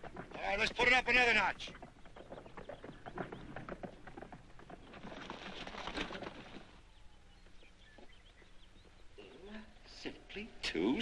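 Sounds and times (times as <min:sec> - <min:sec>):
rustling: 0:00.0 - 0:06.9
horse hooves on turf: 0:00.0 - 0:09.1.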